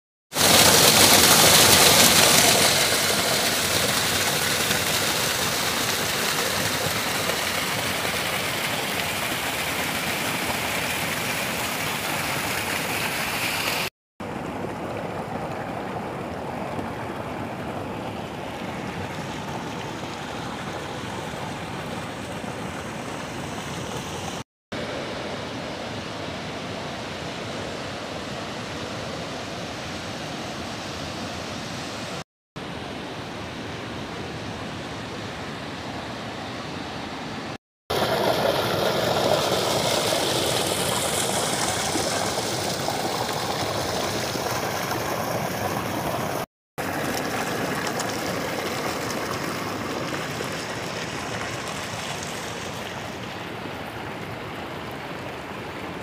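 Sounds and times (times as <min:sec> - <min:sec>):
waterfall pouring over rocks: 0:00.3 - 0:24.4, 0:37.9 - 0:56.0
stream tumbling over boulders: 0:00.3 - 0:25.1, 0:37.9 - 0:56.0.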